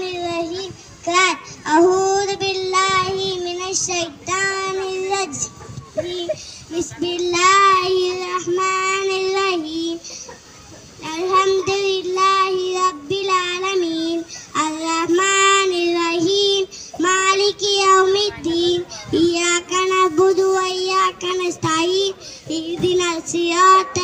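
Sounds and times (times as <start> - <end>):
boy singing solo: 0.0 - 10.2, 10.9 - 24.0.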